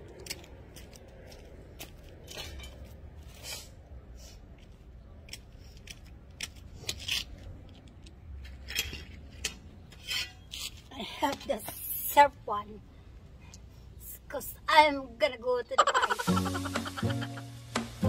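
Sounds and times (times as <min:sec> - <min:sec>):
metal garden tools clinking: 0:02.2 - 0:02.9.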